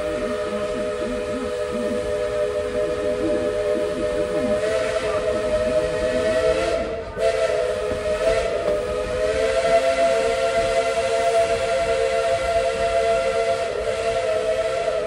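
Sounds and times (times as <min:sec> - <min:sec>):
steam locomotive chime whistle: 0:00.0 - 0:15.0.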